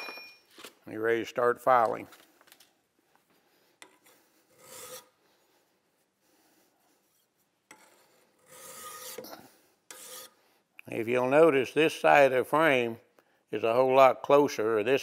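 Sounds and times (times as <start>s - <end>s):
hand file rasping on metal: 3.8s - 5.2s, 7.1s - 10.4s.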